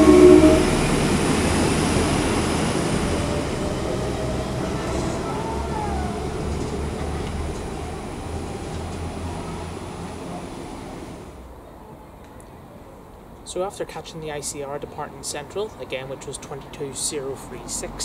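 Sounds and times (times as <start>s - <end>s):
brief pitched tone: 0.0s - 1.2s
train engine drone: 0.0s - 12.1s.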